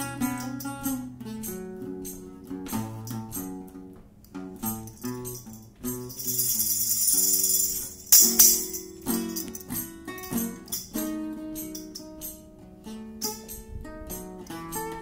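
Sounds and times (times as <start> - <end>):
guitar picking and strumming: 0.0 - 15.0
tambourine jingling: 4.6 - 12.6, 13.2 - 15.0.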